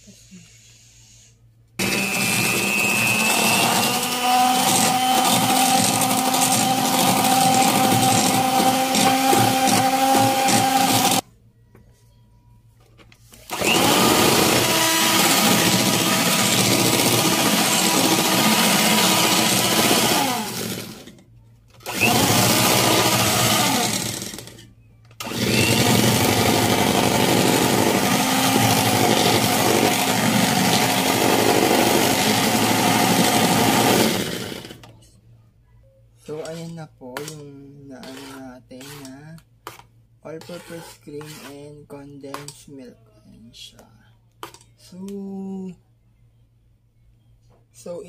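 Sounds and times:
electric hand mixer whirring: 1.8 - 11.2, 13.5 - 21.2, 21.8 - 24.6, 25.2 - 34.9.

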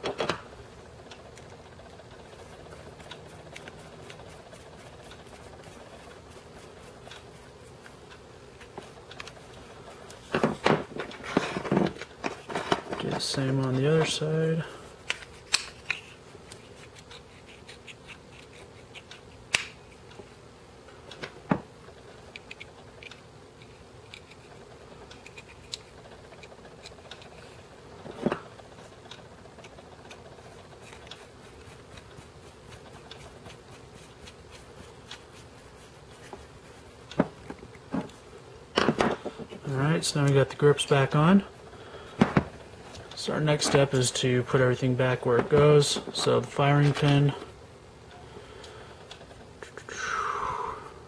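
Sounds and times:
screwdriver clicks and scrapes: 22.3 - 24.5.

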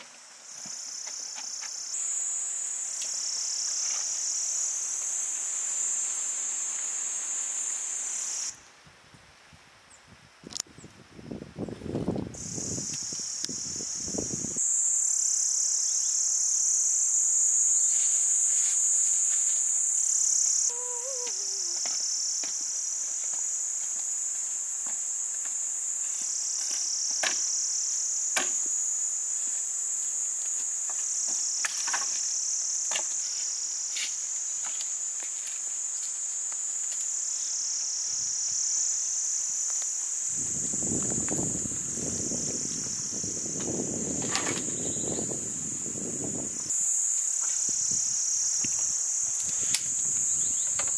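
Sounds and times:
insects shrilling: 0.5 - 8.6, 12.4 - 50.9.

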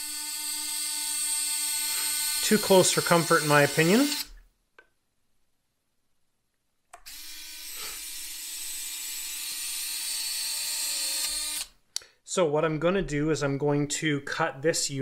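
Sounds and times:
small electric motor whirring: 0.0 - 4.4, 7.0 - 11.8.

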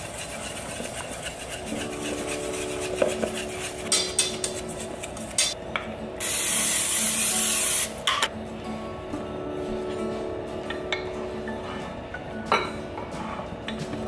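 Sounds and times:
whisk scraping a steel bowl: 0.0 - 5.6
aerosol spray hissing: 6.2 - 8.0.

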